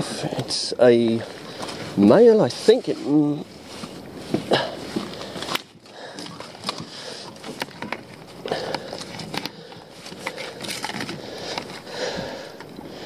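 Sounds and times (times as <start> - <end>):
lobster pot clicks and rustling: 5.0 - 11.9.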